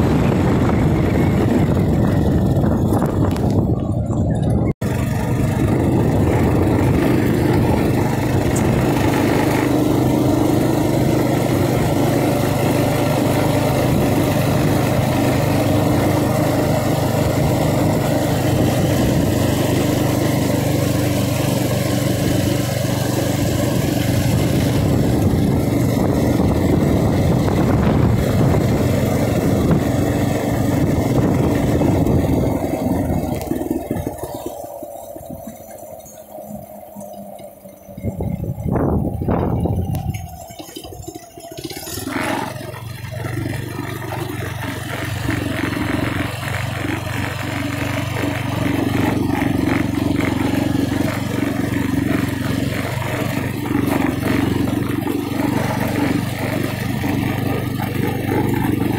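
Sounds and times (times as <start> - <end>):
small motorbike engine running: 0.0 - 58.9.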